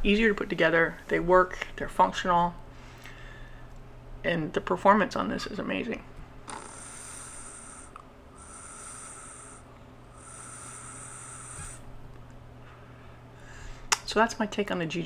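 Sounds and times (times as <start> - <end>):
airy hiss of vaping pulls: 6.5 - 11.9.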